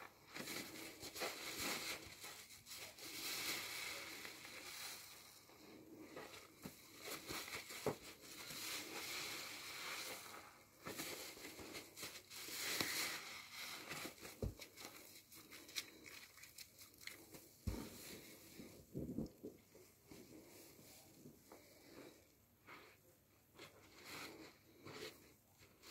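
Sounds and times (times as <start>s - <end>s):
sponge squelching in soapy lather: 7.1s - 18.7s.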